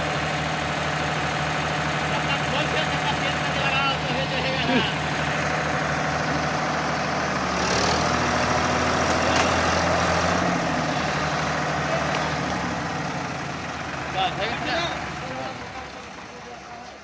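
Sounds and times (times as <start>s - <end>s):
tractor diesel engines running: 0.0s - 17.0s.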